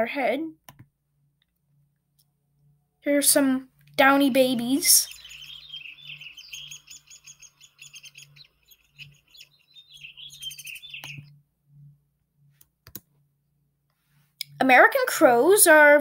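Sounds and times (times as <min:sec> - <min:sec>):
nestlings chirping: 0:03.8 - 0:11.4.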